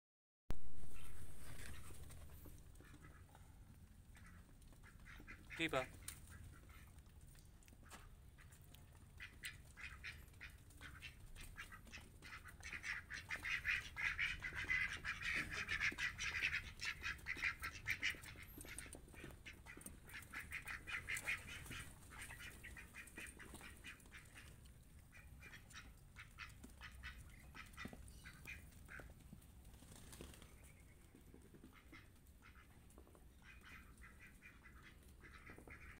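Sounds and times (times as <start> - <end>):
ducks quacking: 0.8 - 7.2, 7.8 - 29.2, 30.4 - 35.9.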